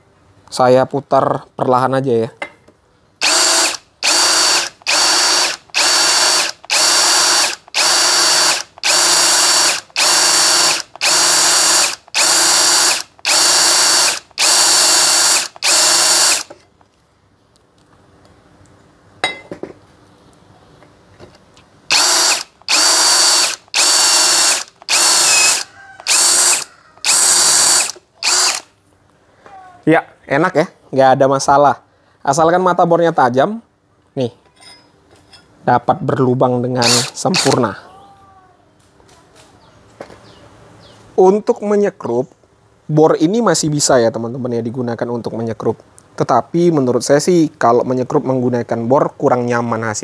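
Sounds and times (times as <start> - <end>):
drill motor whine bursts: 3.2 - 16.5, 21.9 - 28.6, 36.8 - 37.6.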